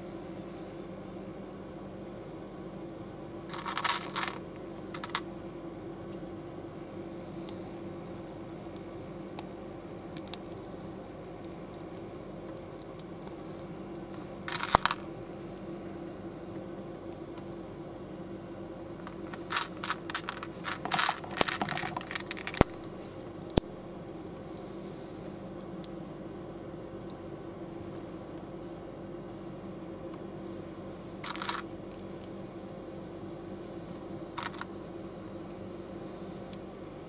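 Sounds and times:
plastic bricks clicking: 0:03.5 - 0:04.4, 0:05.0 - 0:05.2, 0:14.5 - 0:15.0, 0:19.1 - 0:22.8, 0:31.2 - 0:31.7, 0:34.4 - 0:34.7.

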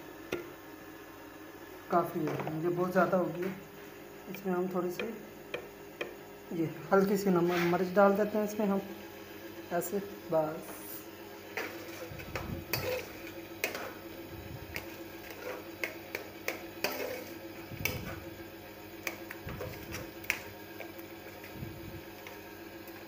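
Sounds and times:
metal spoon scraping a pan: 0:11.5 - 0:14.0, 0:14.7 - 0:18.2.

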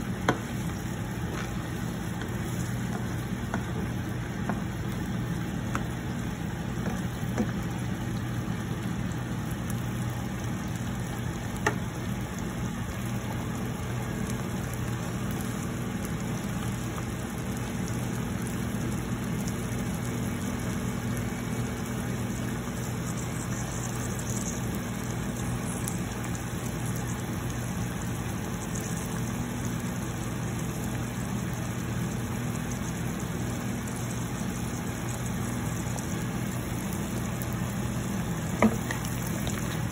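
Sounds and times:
broth bubbling in pan: 0:00.0 - 0:39.9
low mechanical hum: 0:00.0 - 0:39.9.

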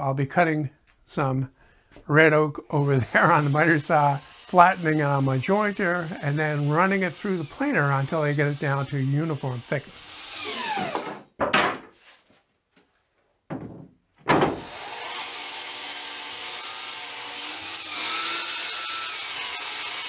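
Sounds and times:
saw cutting wood: 0:02.7 - 0:11.3, 0:14.5 - 0:20.0
miter saw running: 0:02.8 - 0:11.1, 0:14.6 - 0:20.0
sharp knocks of wood board: 0:11.0 - 0:11.9, 0:13.5 - 0:14.7.

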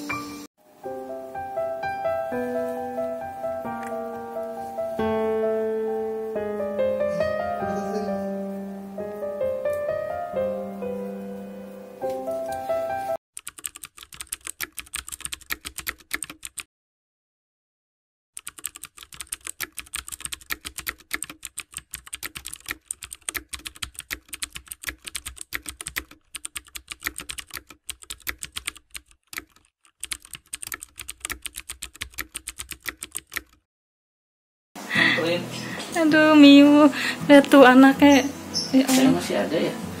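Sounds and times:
piano piece: 0:00.0 - 0:13.2
rapid keyboard typing: 0:13.4 - 0:16.7, 0:18.4 - 0:33.6.

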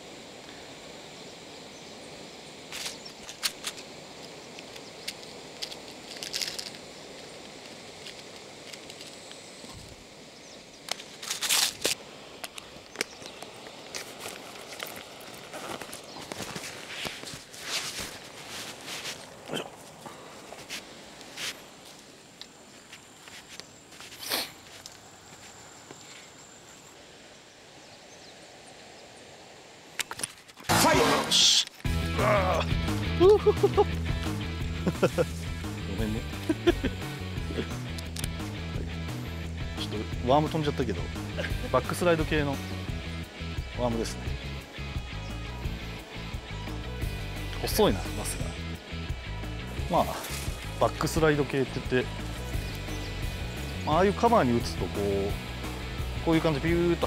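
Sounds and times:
outdoor hiss: 0:00.0 - 0:57.0
footsteps rustling through grass: 0:05.2 - 0:27.1, 0:49.6 - 0:53.8.

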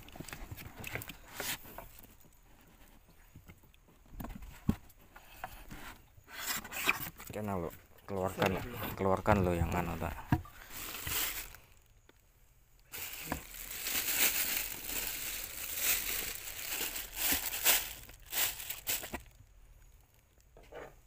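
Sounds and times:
plastic bag crinkling: 0:09.9 - 0:11.9, 0:12.8 - 0:19.5.

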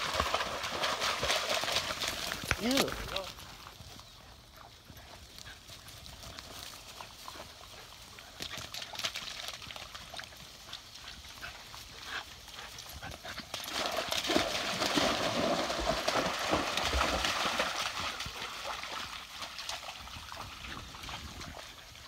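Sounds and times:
water splashing: 0:00.0 - 0:03.3, 0:13.7 - 0:21.9
dog paws pattering on dry grass: 0:00.0 - 0:14.4.

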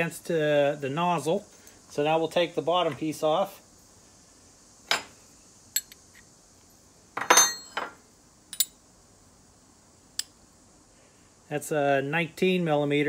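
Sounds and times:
metal tools clinking: 0:07.2 - 0:08.7.

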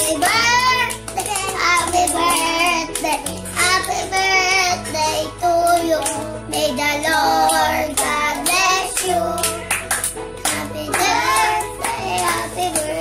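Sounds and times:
children singing: 0:00.0 - 0:09.7, 0:10.5 - 0:13.0
children clapping: 0:00.0 - 0:13.0.

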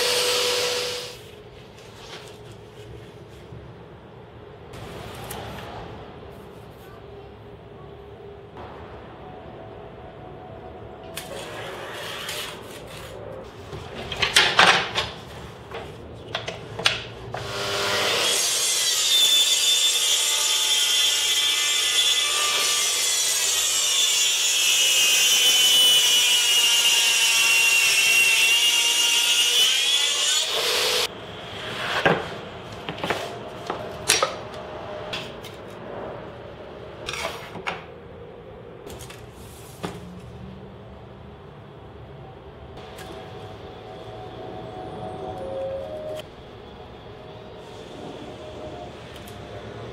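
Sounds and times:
track saw cutting board: 0:00.0 - 0:01.2.

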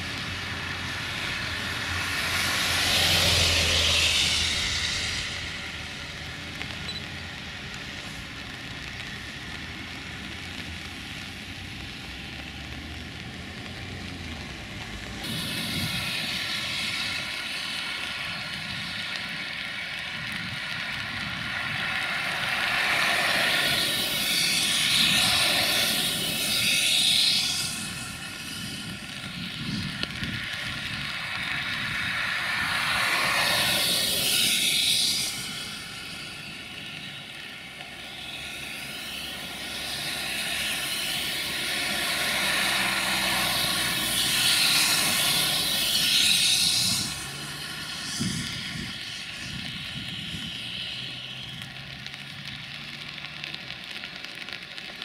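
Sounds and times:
rushing noise: 0:00.0 - 0:12.7, 0:13.4 - 0:55.0
drone propellers whirring: 0:30.0 - 0:36.9.

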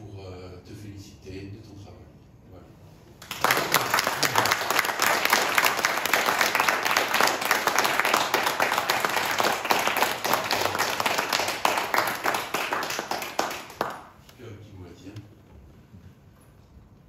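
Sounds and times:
audience applauding: 0:03.2 - 0:14.2.

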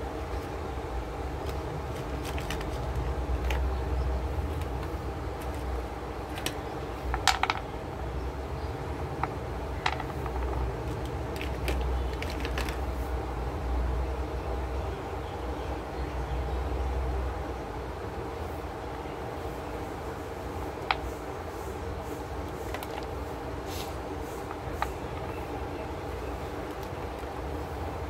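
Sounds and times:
crayons clicking on wooden desk: 0:01.4 - 0:03.8, 0:04.4 - 0:07.7, 0:09.2 - 0:12.9, 0:26.6 - 0:27.4.

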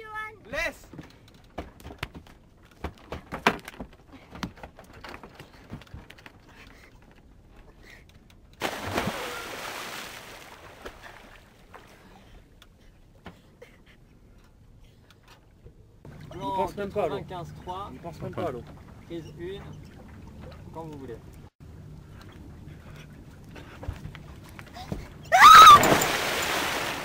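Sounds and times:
knocks and clatter on boat deck: 0:00.9 - 0:07.2.

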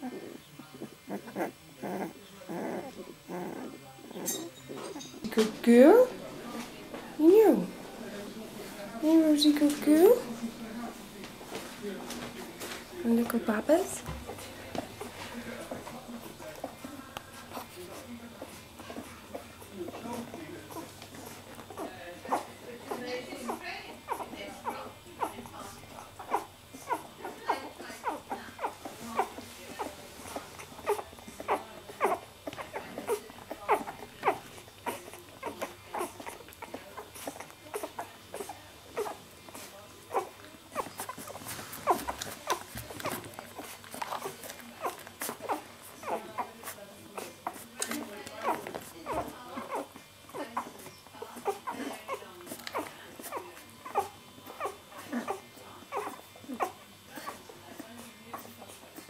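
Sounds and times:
puppies squeaking and whimpering: 0:26.2 - 0:47.6, 0:48.4 - 0:58.9.

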